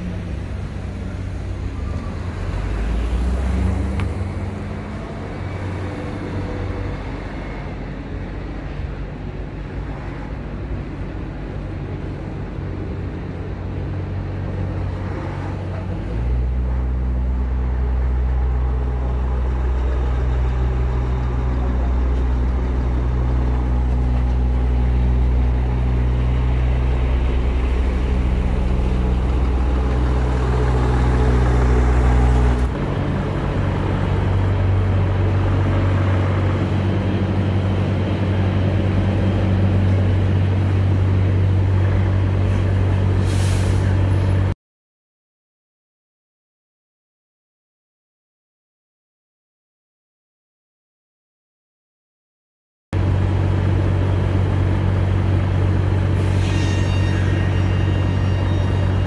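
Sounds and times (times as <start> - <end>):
truck diesel engine running: 18.5 - 43.1.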